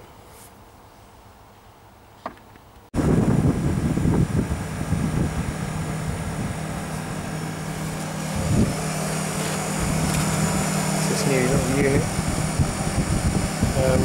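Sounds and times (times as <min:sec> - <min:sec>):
condensing unit humming: 0:03.0 - 0:14.0.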